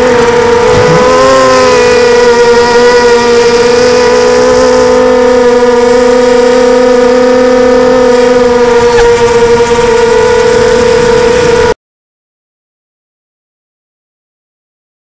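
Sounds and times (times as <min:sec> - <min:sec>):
drone motors and propellers whining: 0:00.0 - 0:11.8.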